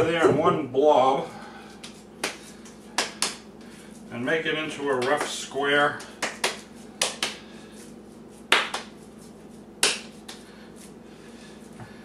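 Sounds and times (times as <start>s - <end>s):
hands slapping meat mixture: 1.8s - 3.8s, 4.8s - 5.4s, 6.0s - 10.5s.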